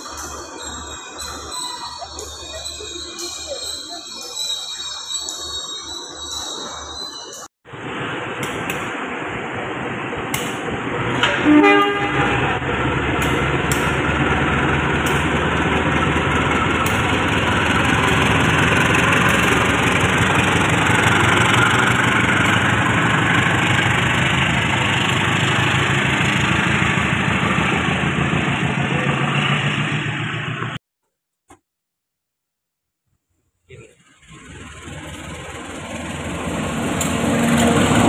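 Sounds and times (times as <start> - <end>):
diesel engine running: 7.7 - 30.8, 33.7 - 38.0
locomotive horn blast: 11.2 - 12.9.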